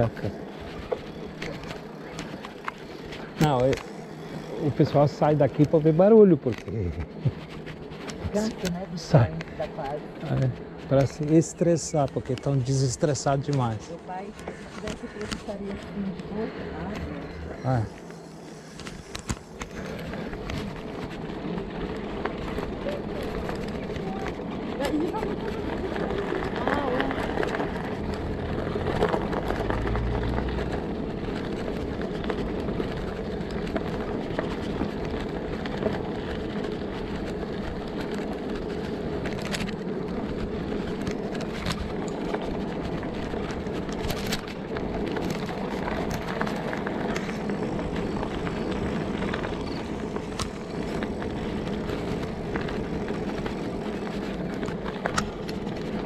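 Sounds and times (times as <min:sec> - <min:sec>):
bicycle tyres crunching on gravel: 0:00.0 - 0:56.0
wind noise: 0:14.5 - 0:56.0
stones clicking: 0:17.9 - 0:56.0.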